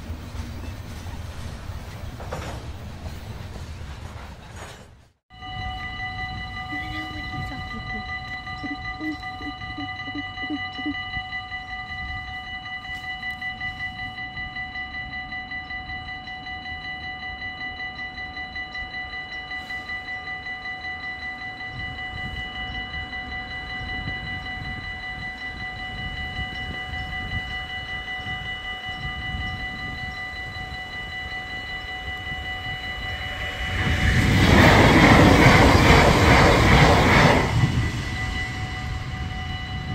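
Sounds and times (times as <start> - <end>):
level crossing warning bells: 5.3 - 39.9
low rumble: 32.6 - 39.9.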